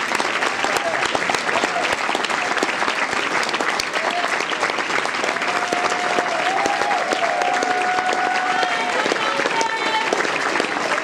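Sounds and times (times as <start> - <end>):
audience applauding: 0.0 - 11.0
person cheering: 5.3 - 10.1.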